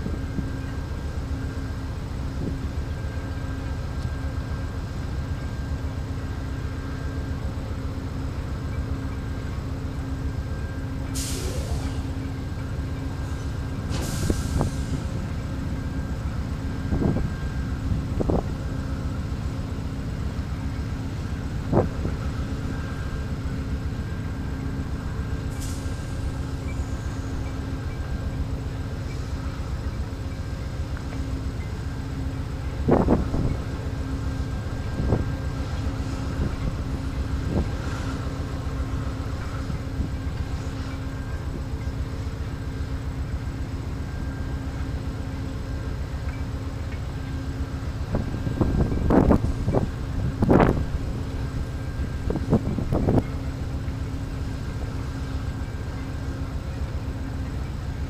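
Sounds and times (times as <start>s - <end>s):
diesel locomotive idling: 0.0s - 58.0s
brief hiss: 11.2s - 12.0s, 13.9s - 15.1s.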